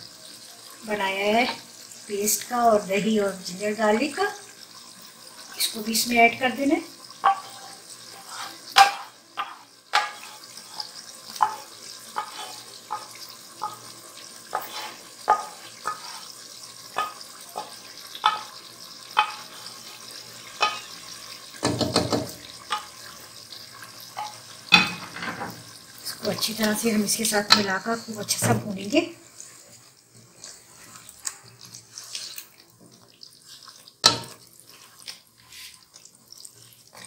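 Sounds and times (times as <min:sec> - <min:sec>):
food sizzling: 0:00.0 - 0:37.0
wooden spoon scraping a pan: 0:07.2 - 0:23.3, 0:24.1 - 0:25.7, 0:26.3 - 0:37.0
knocks: 0:21.6 - 0:22.4.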